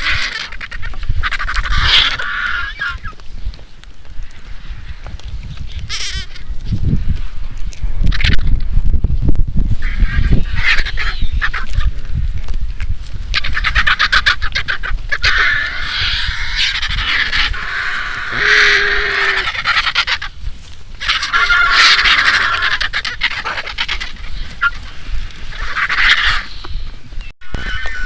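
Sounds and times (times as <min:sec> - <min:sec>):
vultures hissing and rasping: 0:00.0 - 0:03.2, 0:13.3 - 0:28.0.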